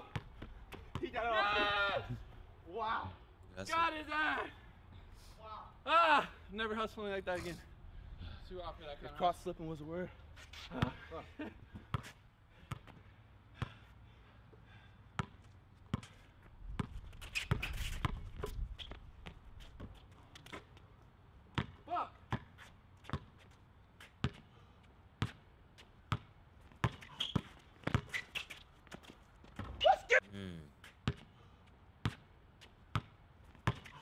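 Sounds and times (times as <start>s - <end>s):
basketball bouncing on concrete: 0.0s - 1.1s, 15.2s - 20.0s, 21.5s - 23.3s, 24.2s - 24.4s, 26.1s - 28.1s, 31.0s - 31.3s, 32.9s - 34.0s.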